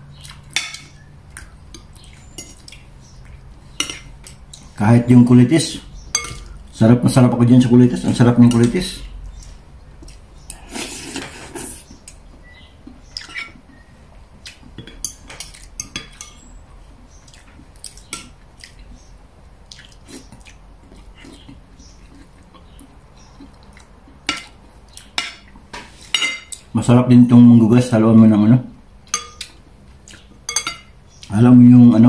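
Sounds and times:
cutlery clinking on plate and bowl: 0.5s - 1.0s, 3.8s - 4.4s, 6.1s - 6.5s, 14.8s - 16.5s, 26.1s - 26.6s, 29.1s - 29.6s, 30.5s - 31.0s.

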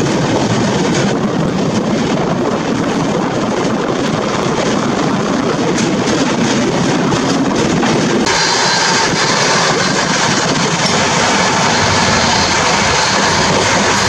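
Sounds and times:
train wheels on rails: 0.0s - 14.0s.

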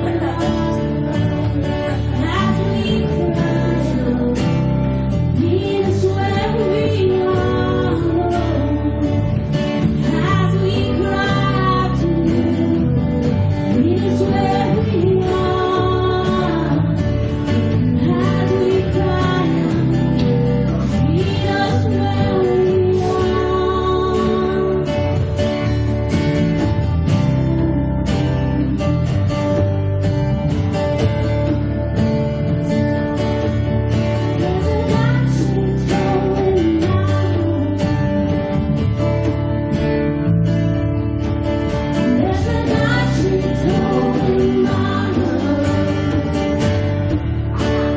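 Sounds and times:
woman singing: 0.0s - 25.3s, 32.8s - 38.4s, 42.0s - 47.9s
drums: 0.0s - 47.9s
live band playing: 0.0s - 47.9s
strummed acoustic guitar: 0.0s - 47.9s
sustained bass notes: 0.0s - 47.9s.

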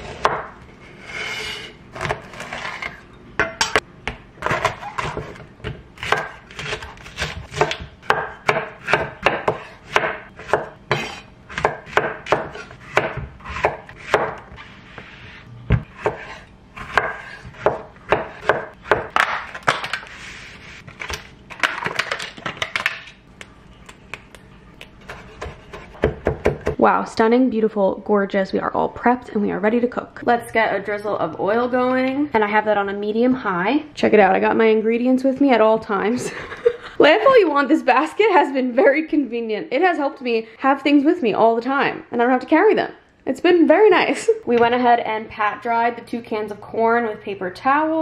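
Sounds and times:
knife chopping on wooden board: 4.4s - 14.5s, 15.7s - 19.9s, 25.0s - 26.8s.

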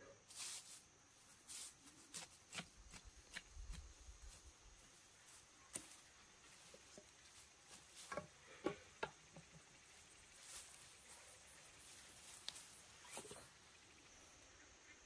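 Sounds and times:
faint taps and rustling: 5.7s - 9.8s.

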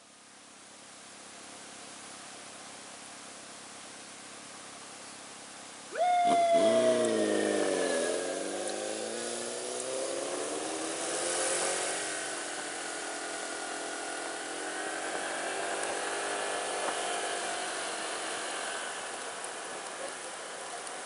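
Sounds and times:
road noise: 5.9s - 21.0s
scooter engine accelerating: 6.4s - 21.0s.

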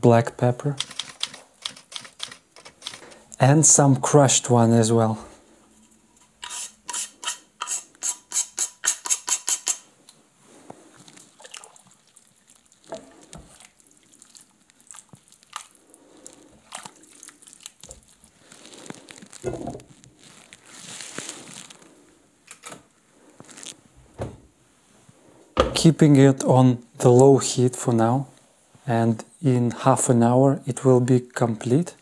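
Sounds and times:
spatula stirring in steel pot: 5.8s - 9.7s
pepper mill grinding: 6.4s - 9.9s.

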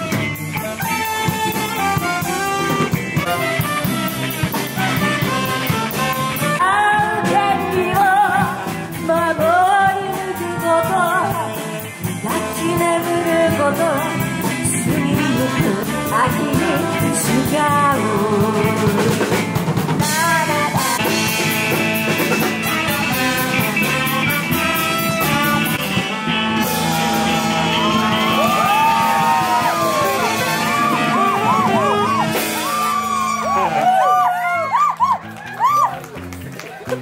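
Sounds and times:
saxophone: 0.0s - 33.8s
drums: 0.0s - 37.0s
guitar: 0.0s - 37.0s
woman singing: 6.6s - 19.4s, 20.0s - 21.1s.

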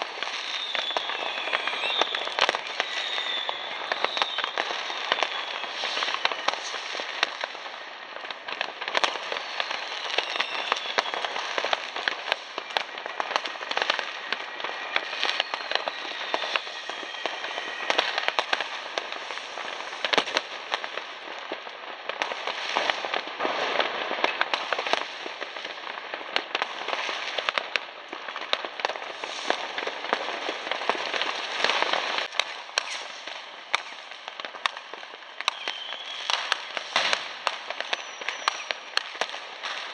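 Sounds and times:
fireworks crackling and banging: 0.0s - 39.9s
rocket whistles: 0.3s - 7.5s, 9.3s - 12.9s, 13.9s - 18.9s, 32.8s - 34.0s, 35.3s - 39.0s.

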